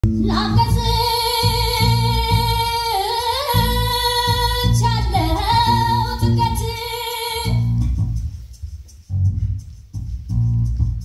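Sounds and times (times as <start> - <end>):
pulsing bass line: 0.0 - 6.8, 7.5 - 11.0.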